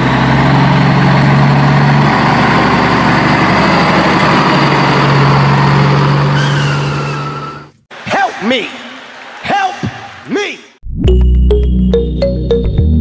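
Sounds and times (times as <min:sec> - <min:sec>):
truck engine idling and chugging: 0:00.0 - 0:07.8.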